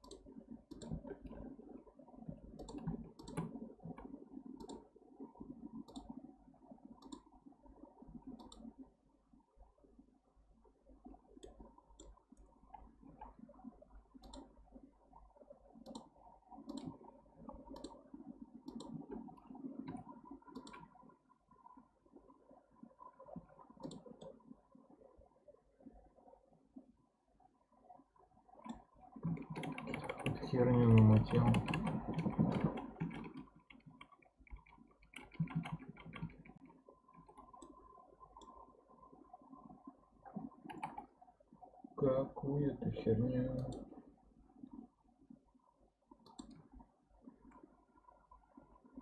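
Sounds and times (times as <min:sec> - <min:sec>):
mouse and keyboard clicks: 0:00.0 - 0:01.1, 0:02.6 - 0:03.6, 0:05.8 - 0:06.1, 0:14.2 - 0:14.5, 0:16.7 - 0:17.0, 0:18.6 - 0:19.0, 0:19.9 - 0:20.9, 0:28.6 - 0:36.7, 0:40.7 - 0:41.1.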